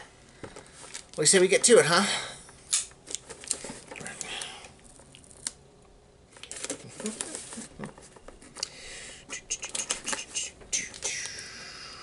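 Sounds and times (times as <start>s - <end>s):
cardboard rustling and scraping: 6.5s - 8.6s.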